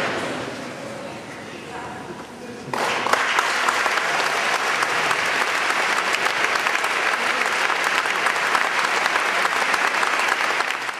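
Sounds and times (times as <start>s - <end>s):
crowd applauding: 2.7s - 10.9s.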